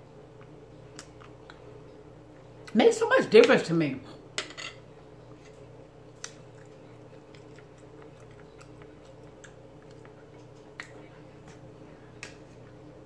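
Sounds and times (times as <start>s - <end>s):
faint chewing: 0.4s - 2.8s, 5.0s - 13.0s.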